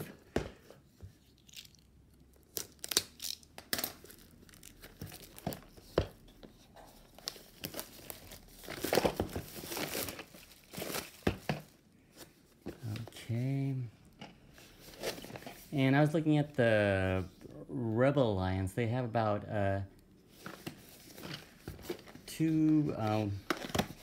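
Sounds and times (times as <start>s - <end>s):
plastic wrapping tearing and crinkling: 1.4s - 5.6s.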